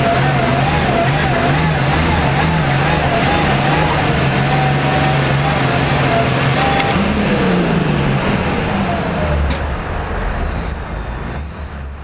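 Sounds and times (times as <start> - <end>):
tractor diesel engine revving: 0.0 - 12.0.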